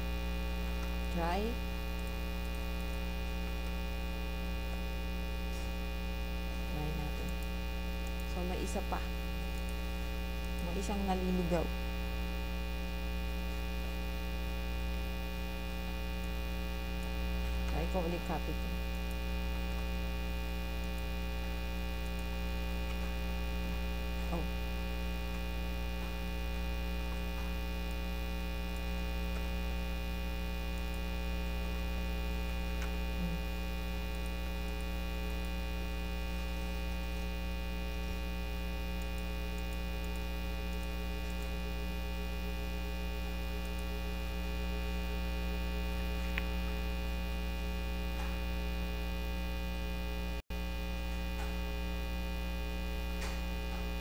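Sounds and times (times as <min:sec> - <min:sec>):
mains hum: 0:00.0 - 0:54.0
faint clicks: 0:01.9 - 0:03.0.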